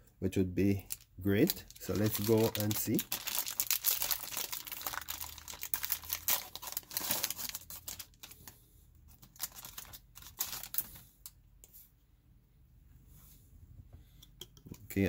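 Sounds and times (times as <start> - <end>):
foil wrapper crinkling and tearing: 0.7 - 11.0.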